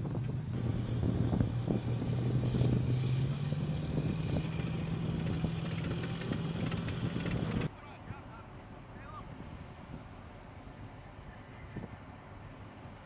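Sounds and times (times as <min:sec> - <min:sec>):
diesel engine running: 0:00.0 - 0:07.7.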